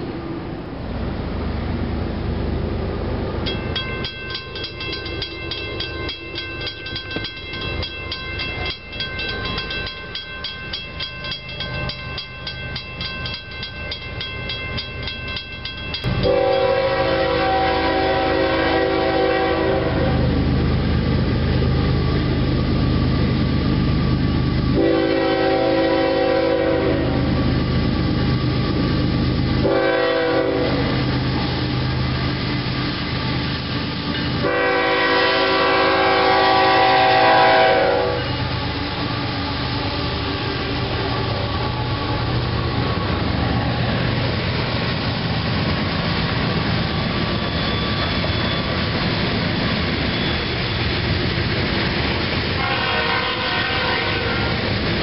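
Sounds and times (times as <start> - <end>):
low rumble of train: 0.0 - 55.0
crossing warning bell ringing: 3.4 - 19.9, 23.7 - 43.0, 46.3 - 51.6
locomotive horn: 16.1 - 20.3, 24.8 - 27.3, 29.6 - 31.0, 34.4 - 38.6, 52.6 - 54.6.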